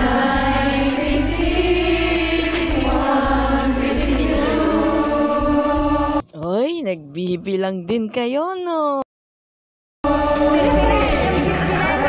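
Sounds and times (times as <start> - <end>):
women singing together: 0.0 - 6.2, 10.1 - 12.0
karaoke backing track: 0.0 - 6.5, 10.0 - 12.0.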